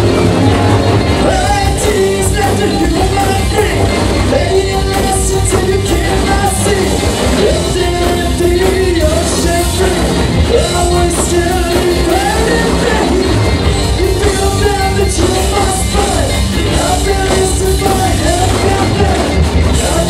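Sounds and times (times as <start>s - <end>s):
bass guitar: 0.0s - 20.0s
distorted electric guitars: 0.0s - 20.0s
drum kit with crashing cymbals: 0.0s - 20.0s
lead guitar line bending in pitch: 0.0s - 20.0s.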